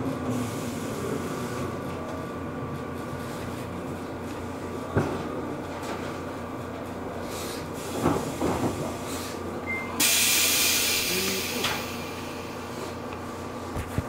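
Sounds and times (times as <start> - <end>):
knocks in train car: 8.0 - 9.0
compressed air hiss: 10.0 - 12.9.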